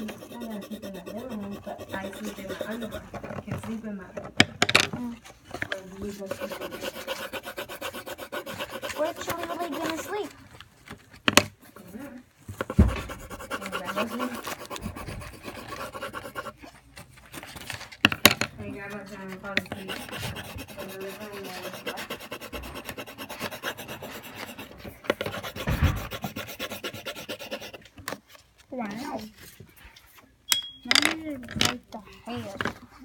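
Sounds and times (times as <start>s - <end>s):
pencil scratching on paper: 0.0s - 3.4s, 6.0s - 10.4s, 11.6s - 17.4s, 18.7s - 27.9s
thumps: 25.2s - 26.2s.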